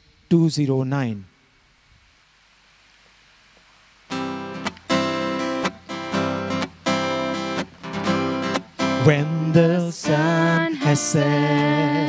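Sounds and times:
acoustic guitar strumming: 0:04.1 - 0:12.0.

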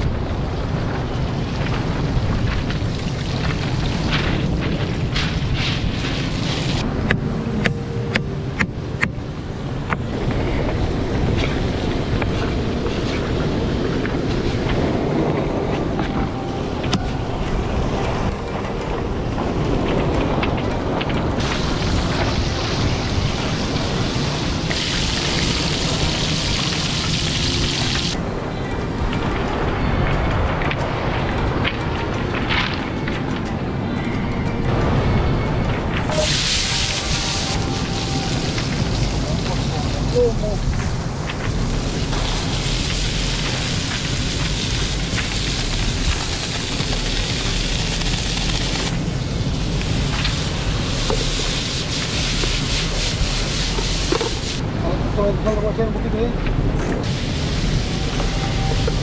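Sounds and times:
steady low rumble: 0:00.0 - 0:59.0
wind buffeting microphone: 0:00.0 - 0:59.0
fish sizzling in hot oil: 0:22.7 - 0:28.2, 0:36.1 - 0:39.6, 0:41.7 - 0:48.9, 0:50.3 - 0:54.6
fish sizzling in oil: 0:22.7 - 0:28.2, 0:36.1 - 0:39.6.

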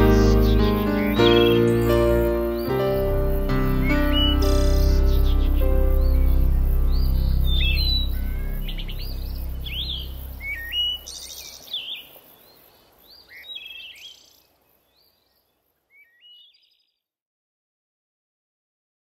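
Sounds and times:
background music: 0:00.0 - 0:11.0
songbirds chirping and trilling: 0:00.0 - 0:17.0.

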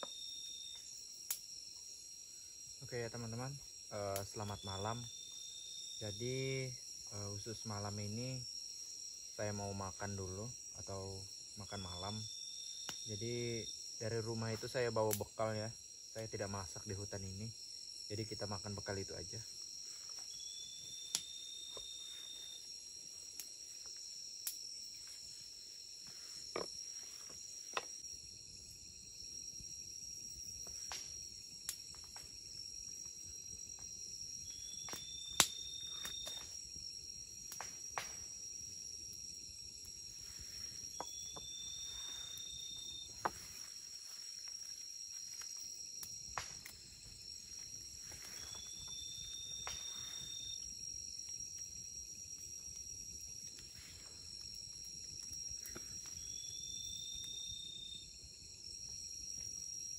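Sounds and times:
crickets shrilling: 0:00.0 - 0:59.9
rising insect call: 0:00.0 - 0:59.9.

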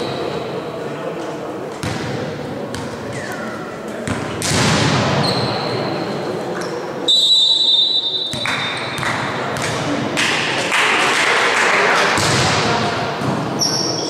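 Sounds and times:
echoing gym noise: 0:00.0 - 0:14.0
referee's whistle: 0:07.1 - 0:09.0.

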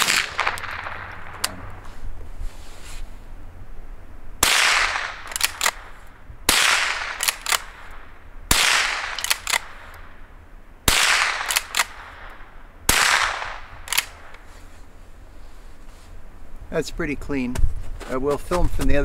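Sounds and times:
rifle shots: 0:00.0 - 0:01.8, 0:04.4 - 0:10.1, 0:10.9 - 0:14.4
rifle bolt metallic clicks: 0:05.2 - 0:05.9, 0:07.1 - 0:07.7, 0:09.1 - 0:10.0, 0:11.4 - 0:12.0, 0:13.9 - 0:14.4.

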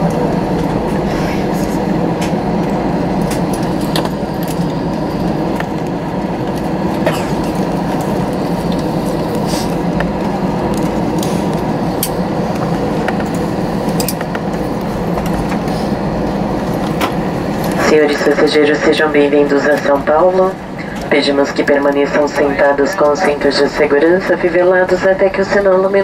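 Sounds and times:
engines and rolling wheels rumble: 0:00.0 - 0:26.0.

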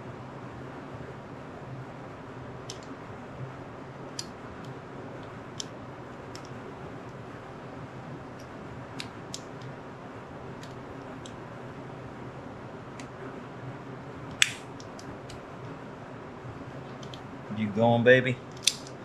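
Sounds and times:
steady low hum: 0:00.0 - 0:19.0
metal parts clicking together: 0:18.5 - 0:19.0.

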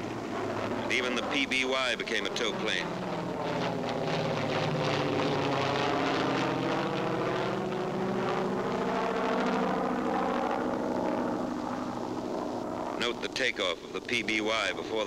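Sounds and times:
propeller engine drone: 0:00.0 - 0:15.0.

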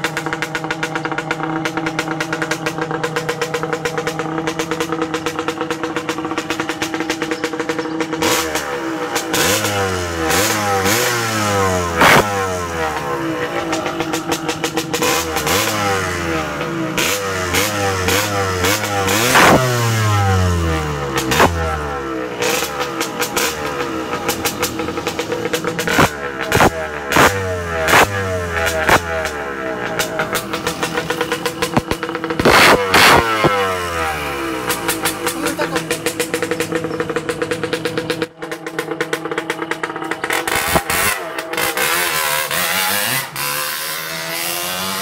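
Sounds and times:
exhaust cracks: 0:00.0 - 0:45.0
motorcycle engine revving: 0:00.0 - 0:45.0.

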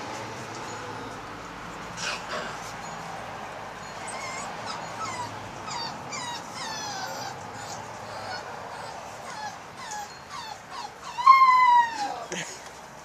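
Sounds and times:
puppies whimpering and yipping: 0:01.8 - 0:03.1, 0:03.8 - 0:12.3.

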